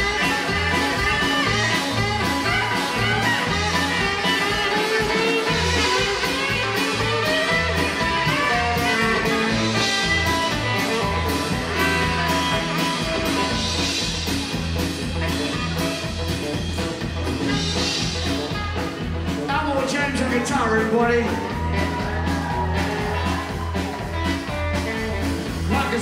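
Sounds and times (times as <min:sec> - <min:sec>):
saxophone melody: 0:00.0 - 0:19.5
steady drums: 0:00.0 - 0:26.0
walking bass line: 0:00.0 - 0:26.0.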